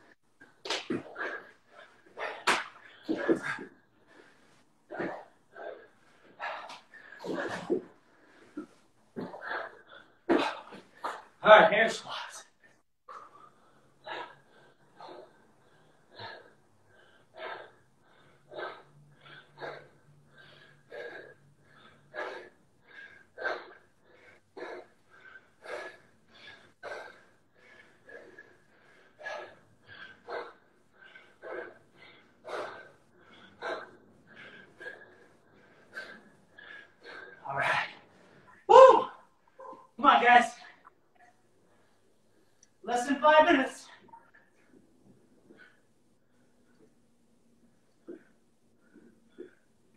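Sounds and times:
man breathing hard: 13.1s - 38.7s.

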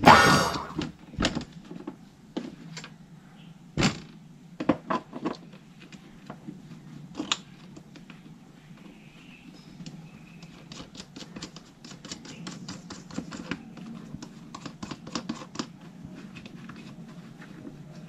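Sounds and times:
plastic parts clicking and scraping: 4.0s - 8.9s, 9.8s - 18.0s.

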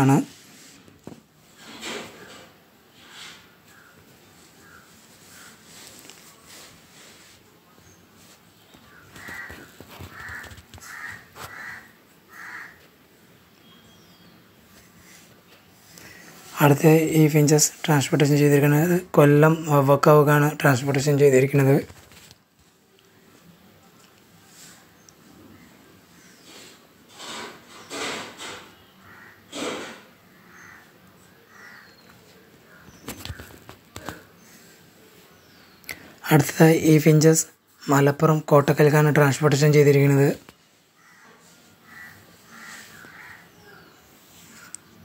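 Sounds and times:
crows cawing: 8.8s - 12.9s, 29.0s - 32.1s, 41.0s - 44.8s.

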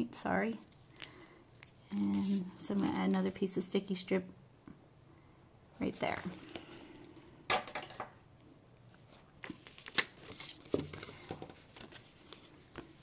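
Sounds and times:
tape and cardstock crinkling: 0.6s - 3.5s, 5.8s - 6.9s, 9.4s - 13.0s.

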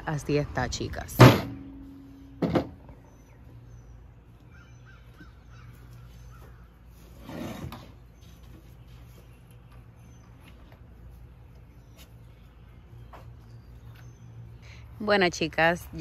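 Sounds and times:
low steady hum: 0.0s - 16.0s
faint bird calls: 2.0s - 7.2s.

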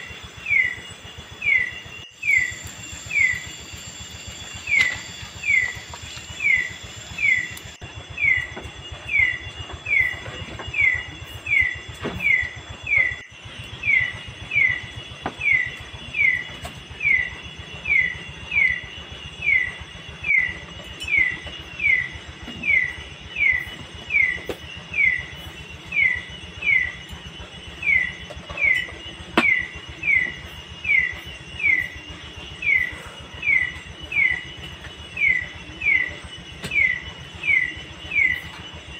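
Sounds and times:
night animal chirping: 0.0s - 38.9s.

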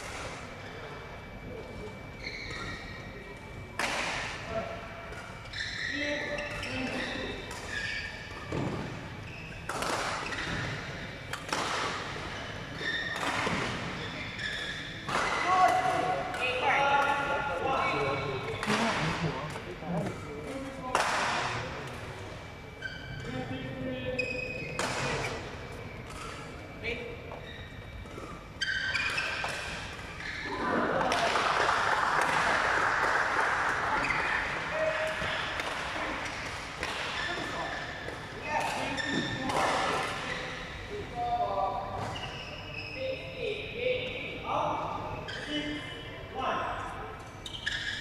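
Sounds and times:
shoes squeaking on court: 0.6s - 3.4s, 5.1s - 15.6s, 22.5s - 23.5s, 24.1s - 30.5s, 34.0s - 43.5s, 47.2s - 48.0s
racket hitting shuttlecock: 3.8s - 4.4s, 9.7s - 12.2s, 15.1s - 17.2s
rackets hitting shuttlecocks: 9.7s - 12.3s
loud applause: 30.6s - 34.5s.

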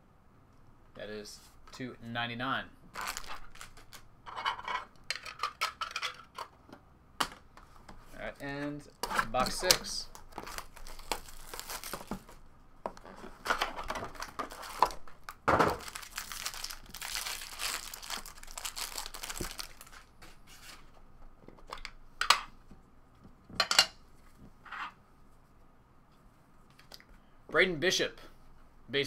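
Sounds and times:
cards rustling: 2.9s - 4.1s, 9.2s - 21.0s
foil wrapper tearing and crinkling: 3.0s - 4.0s, 10.2s - 12.4s, 14.1s - 20.1s.

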